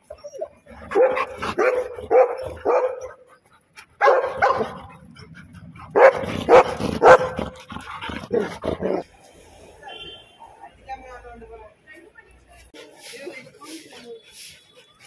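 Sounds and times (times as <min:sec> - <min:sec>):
dog barking: 0:00.9 - 0:03.2, 0:04.0 - 0:04.9, 0:05.9 - 0:07.6.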